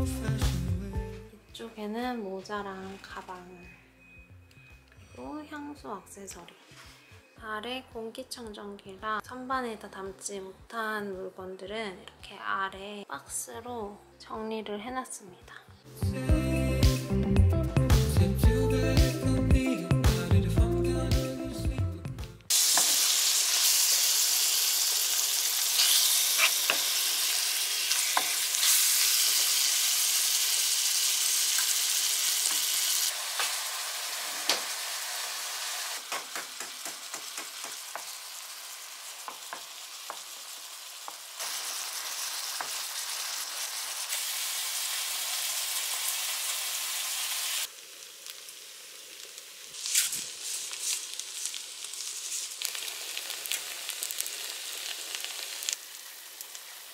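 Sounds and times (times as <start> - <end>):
food sizzling in frying pan: 22.5 - 56.9.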